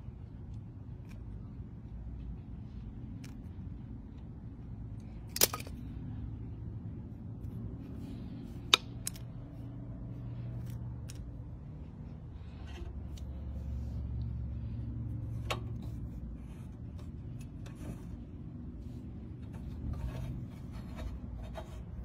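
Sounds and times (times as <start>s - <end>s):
steady low hum: 0.0s - 22.0s
tools clicking and scraping on lock: 5.1s - 5.9s.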